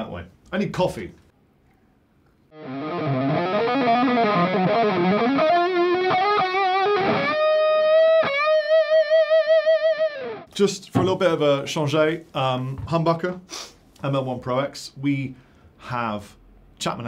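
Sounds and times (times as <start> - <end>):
overdriven electric guitar lead: 2.5 - 10.5.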